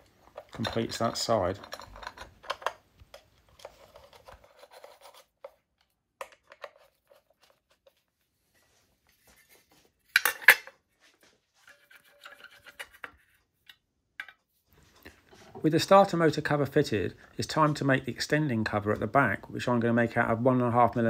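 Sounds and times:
metallic clicks and scrapes: 0:00.1 - 0:05.6, 0:11.6 - 0:13.4.

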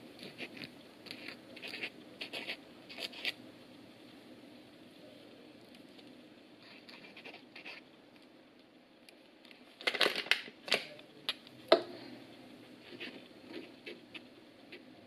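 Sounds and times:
light scratching: 0:00.2 - 0:03.4, 0:06.0 - 0:07.9, 0:12.8 - 0:14.9.

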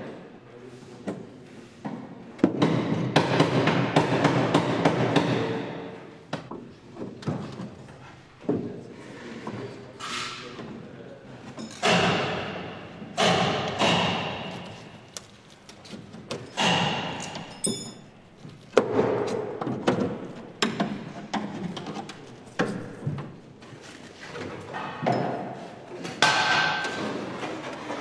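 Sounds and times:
heavy ringing knocks: 0:16.4 - 0:18.2.

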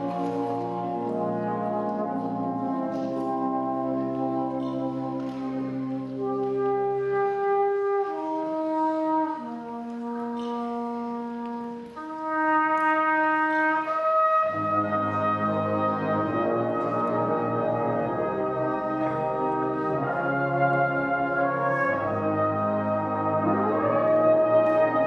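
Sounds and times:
brass band playing: 0:00.0 - 0:25.0
tenor horn solo melody: 0:06.0 - 0:25.0.

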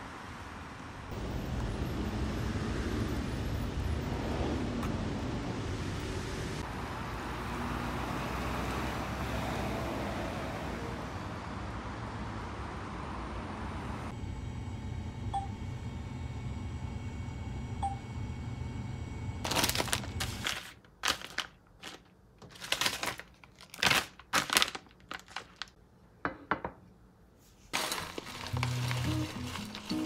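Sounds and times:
plastic pouch crinkling: 0:19.4 - 0:25.8, 0:27.8 - 0:30.0
ceramic dish knocking on countertop: 0:26.2 - 0:26.8.

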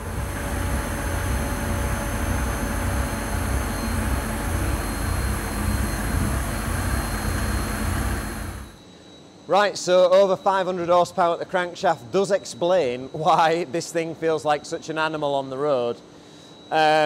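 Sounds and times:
diesel engine under load: 0:00.0 - 0:08.8.

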